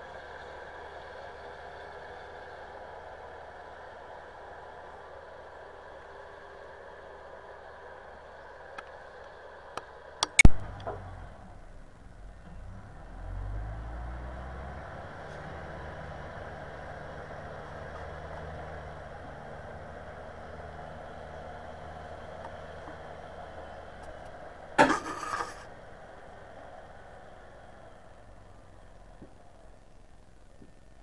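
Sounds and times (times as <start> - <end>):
loader engine running: 0.0 - 31.0.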